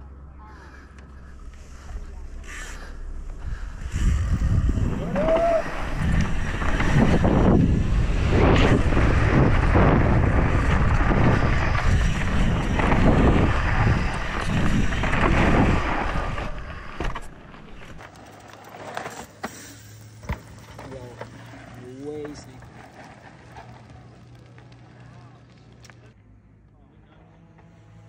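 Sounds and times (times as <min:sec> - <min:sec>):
bike tyre and frame rattle: 0:01.1 - 0:26.2
wind rushing over microphone: 0:03.4 - 0:17.2.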